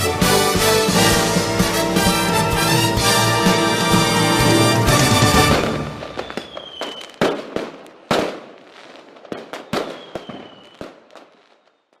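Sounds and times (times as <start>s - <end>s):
fireworks bangs with crackling: 0.0s - 12.0s
faint high whistle: 5.9s - 7.2s, 9.7s - 10.8s.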